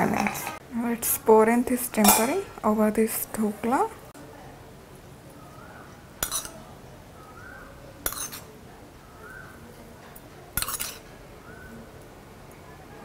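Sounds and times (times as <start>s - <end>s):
metal spoon scraping a pan: 6.2s - 6.6s, 8.0s - 8.6s, 10.6s - 11.2s.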